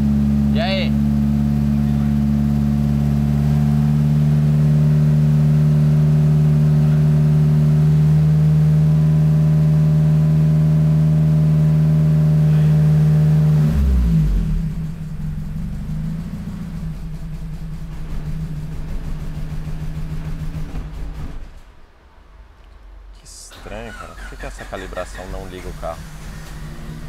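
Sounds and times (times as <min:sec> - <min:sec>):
engine uneven idle: 0:00.0 - 0:04.6, 0:14.2 - 0:21.6, 0:23.5 - 0:27.0
turbocharged car engine: 0:00.0 - 0:21.6, 0:23.4 - 0:27.0.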